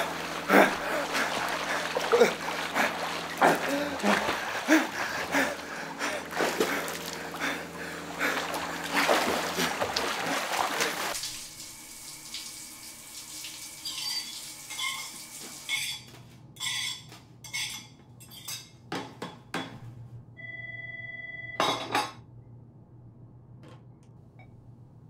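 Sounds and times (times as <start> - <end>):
shower water hiss: 11.1 - 14.6.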